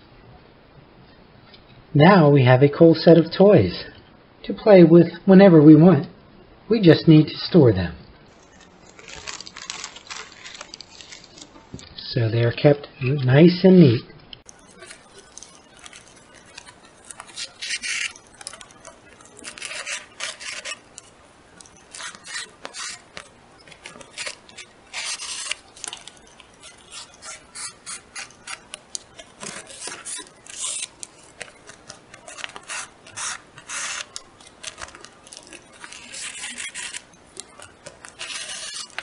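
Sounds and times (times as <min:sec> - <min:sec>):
shoelace scraping through holes: 0:08.3 - 0:11.7, 0:14.5 - 0:39.0
plastic bags crinkling: 0:08.3 - 0:11.8, 0:14.5 - 0:39.0
paper boards rustling: 0:14.5 - 0:39.0.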